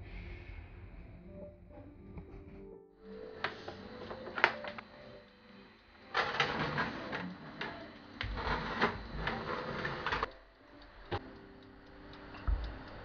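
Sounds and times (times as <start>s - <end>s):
metal tray scraping and clattering: 6.1s - 7.3s, 8.2s - 10.3s
oven door opening: 6.1s - 10.3s.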